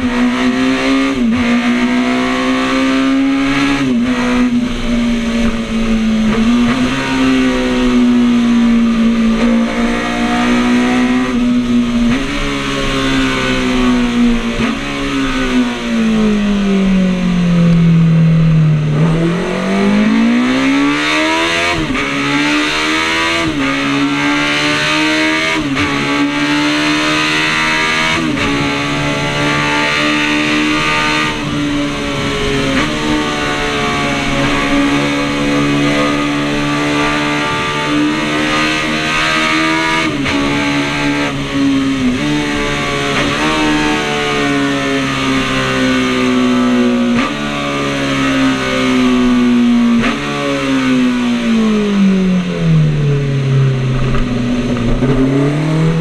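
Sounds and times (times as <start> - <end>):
motorcycle engine at high revs: 0.0 - 56.0
wind noise: 53.0 - 56.0.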